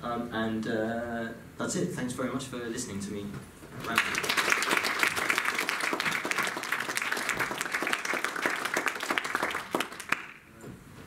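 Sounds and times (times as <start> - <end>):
audience applauding: 3.8 - 10.4.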